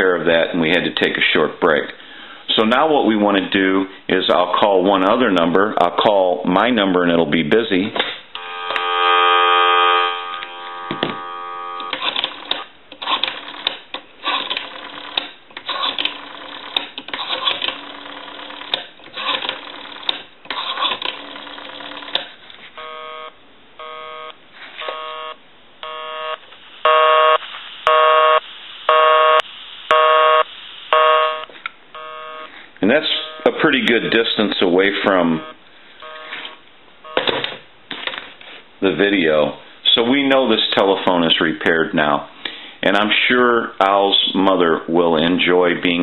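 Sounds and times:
telephone busy signal: 8.4 - 12.0, 22.8 - 34.1, 35.0 - 37.4
telephone dial tone: 8.4 - 12.6, 22.8 - 28.0, 31.0 - 33.6, 35.1 - 37.4.

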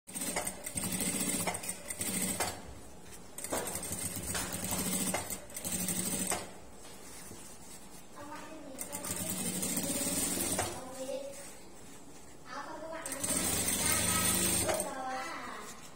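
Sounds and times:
sewing machine stitching: 0.1 - 2.6, 3.4 - 6.5, 8.8 - 10.8, 13.0 - 15.0.

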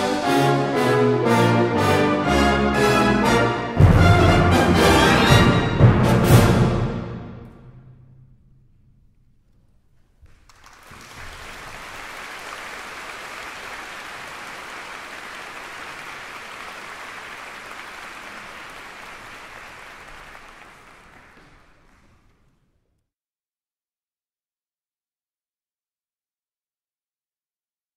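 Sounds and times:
audience applauding: 10.2 - 22.6.

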